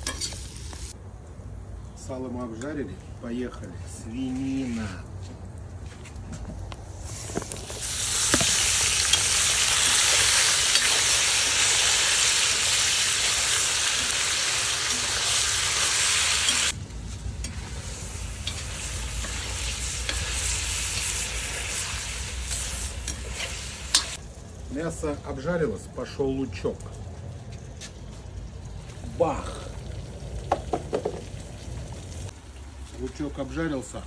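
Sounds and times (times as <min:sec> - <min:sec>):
meat sizzling in hot fat: 0:00.0 - 0:01.0, 0:06.9 - 0:24.4, 0:28.7 - 0:32.4.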